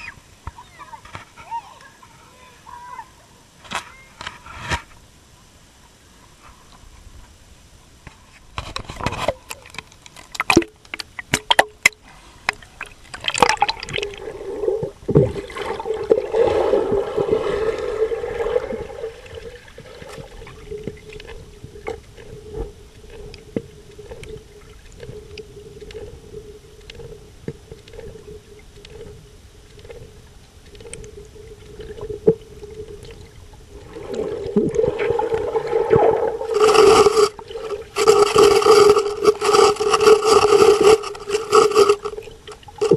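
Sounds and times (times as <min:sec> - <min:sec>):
water splashing and gurgling: 0:09.3 - 0:42.9.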